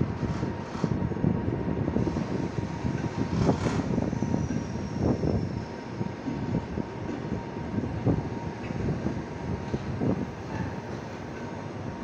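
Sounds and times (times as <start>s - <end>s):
train wheels rumbling on rails: 0.0s - 12.0s
clacks and knocks of train wheels: 2.1s - 5.4s, 9.6s - 11.6s.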